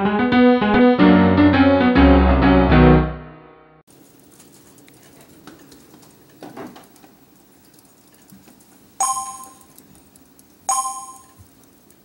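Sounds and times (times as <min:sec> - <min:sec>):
two-tone electronic chime: 0:09.0 - 0:09.7, 0:10.7 - 0:11.4.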